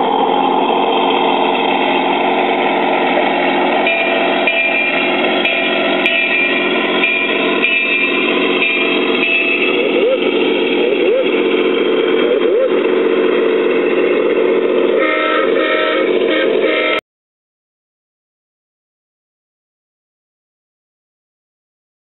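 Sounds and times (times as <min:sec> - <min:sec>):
model locomotive engine sound: 0:00.0 - 0:17.0
locomotive horn blasts: 0:02.7 - 0:13.6, 0:14.7 - 0:17.0.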